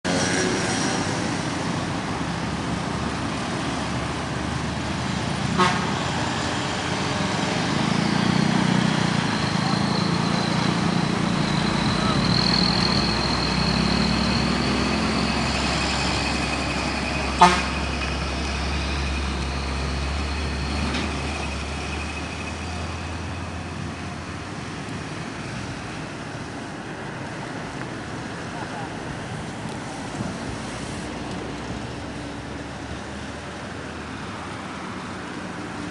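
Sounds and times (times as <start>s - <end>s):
truck diesel engine drone: 0.0s - 35.9s
motorcycles and cars passing: 0.1s - 35.9s
car horn toot: 5.6s - 6.0s, 17.3s - 17.8s.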